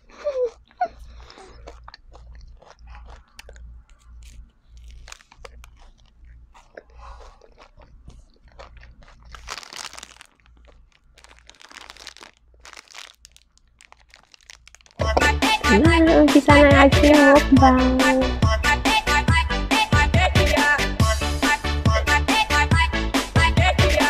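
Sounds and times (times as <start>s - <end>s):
person crunching chocolate: 0.0s - 15.2s.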